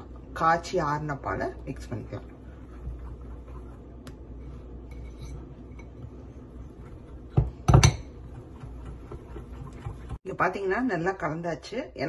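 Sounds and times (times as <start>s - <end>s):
fork stirring batter in bowl: 1.4s - 10.2s.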